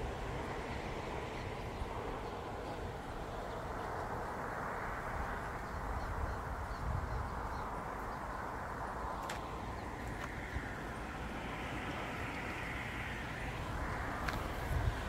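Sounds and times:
outdoor rumble and hiss: 0:00.0 - 0:15.0.

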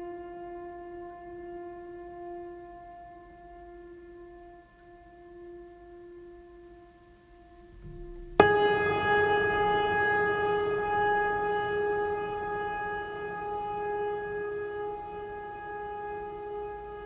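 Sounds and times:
quiet drone tone: 0:00.0 - 0:17.0
sustained musical chord: 0:07.6 - 0:17.0.

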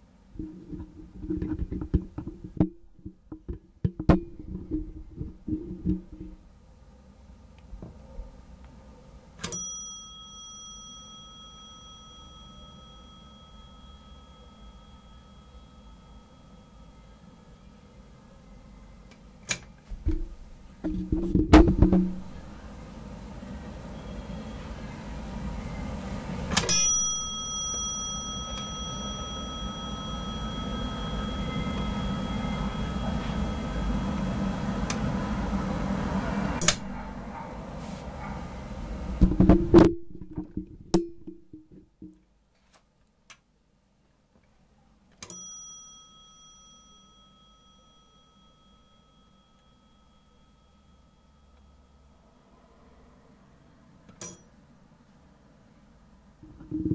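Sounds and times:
low steady hum: 0:00.0 - 0:56.9
elevator gong ding: 0:09.4 - 0:19.9, 0:22.0 - 0:37.5, 0:45.2 - 0:52.4, 0:54.2 - 0:54.7.

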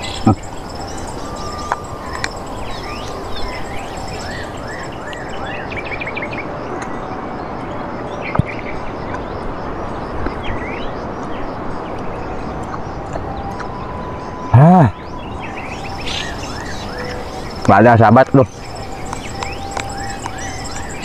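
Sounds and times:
birds calling: 0:00.0 - 0:05.8, 0:15.3 - 0:21.0
outdoor background noise: 0:00.0 - 0:21.0.

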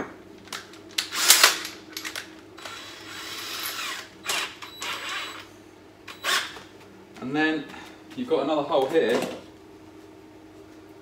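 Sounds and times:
drill whirring: 0:01.0 - 0:01.6, 0:02.6 - 0:05.5, 0:06.1 - 0:06.6.

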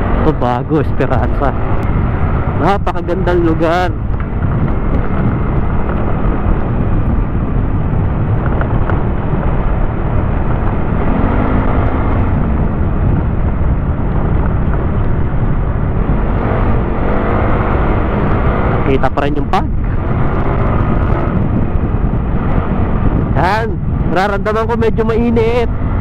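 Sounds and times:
motorcycle engine: 0:00.0 - 0:26.0
wind rushing on microphone: 0:00.0 - 0:26.0.

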